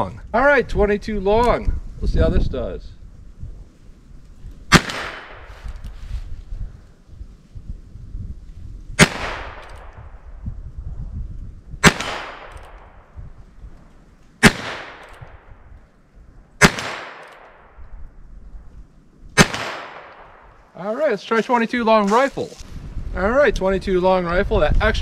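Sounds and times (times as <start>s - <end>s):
revolver gunshots with echo: 4.7s - 5.5s, 9.0s - 10.2s, 11.8s - 13.1s, 14.4s - 15.6s, 16.6s - 17.8s, 19.4s - 20.5s.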